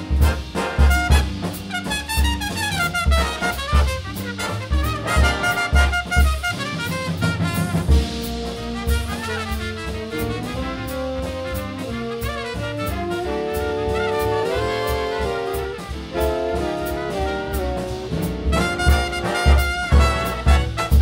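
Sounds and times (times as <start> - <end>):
bass: 0.0 - 21.0
saxophones and brass chords: 0.0 - 21.0.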